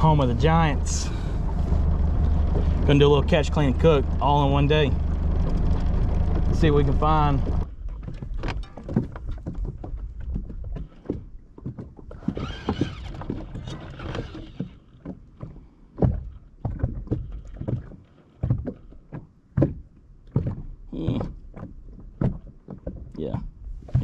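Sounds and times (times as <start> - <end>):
gear knocking and thumping: 5.0 - 10.6.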